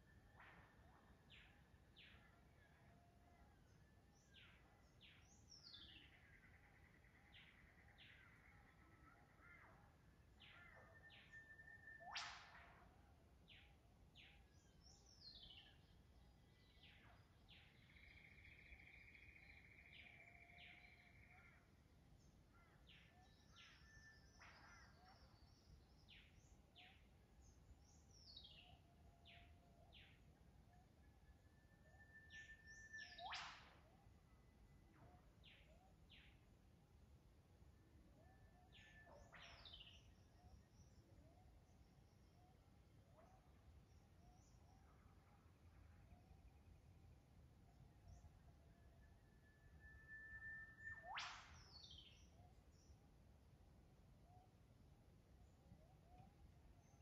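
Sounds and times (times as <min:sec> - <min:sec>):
bird trills: 0:05.5 - 0:13.7, 0:31.8 - 0:33.8, 0:49.4 - 0:52.9
sharp rising whip-like bird call: 0:12.0 - 0:12.9, 0:33.0 - 0:33.9, 0:50.9 - 0:52.1.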